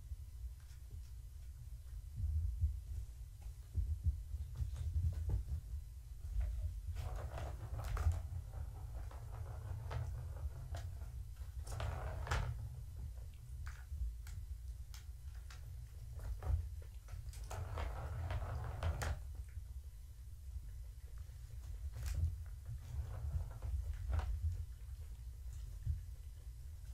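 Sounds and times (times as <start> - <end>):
steady low hum: 0.0 - 26.9
plastic ball rolling and rattling: 4.5 - 14.1, 15.4 - 19.6, 21.5 - 25.0.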